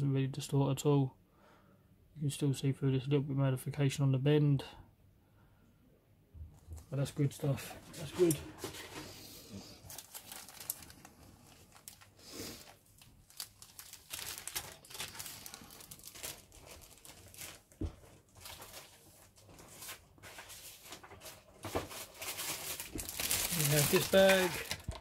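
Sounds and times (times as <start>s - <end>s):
plastic bag crinkling: 9.6s - 25.0s.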